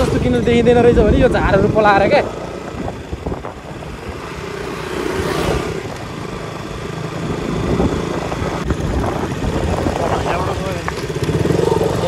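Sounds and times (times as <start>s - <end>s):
motorcycle engine running: 0.0s - 12.0s
road noise: 0.0s - 12.0s.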